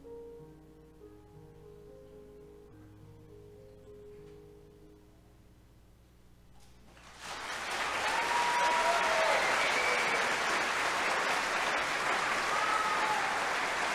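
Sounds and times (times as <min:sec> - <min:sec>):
audience applause: 0:07.0 - 0:13.9
high whoops: 0:07.7 - 0:10.8, 0:11.8 - 0:13.9.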